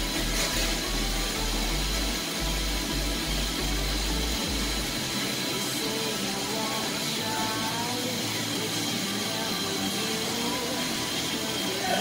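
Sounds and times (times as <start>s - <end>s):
background music with bass line: 0.0s - 12.0s.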